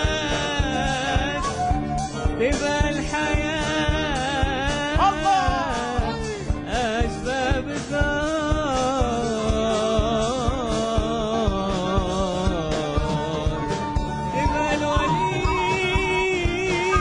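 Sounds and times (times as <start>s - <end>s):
wooden flute melody: 0.0s - 6.3s, 12.6s - 17.0s
man singing: 0.0s - 17.0s
percussion beat: 0.0s - 17.0s.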